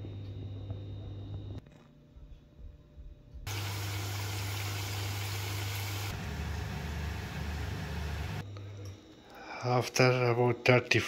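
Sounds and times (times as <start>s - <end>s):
oven fan hum and hiss: 2.2s - 11.0s.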